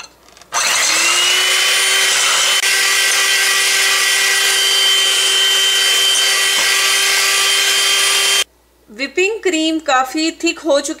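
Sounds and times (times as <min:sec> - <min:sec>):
hand mixer whipping cream: 0:00.6 - 0:08.5.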